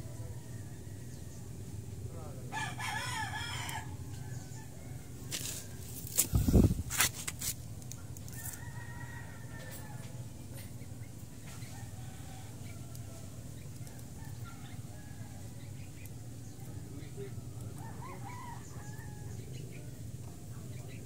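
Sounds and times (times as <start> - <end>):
rooster crowing: 2.5 - 6.0, 8.3 - 10.3, 11.7 - 13.4, 17.4 - 19.5.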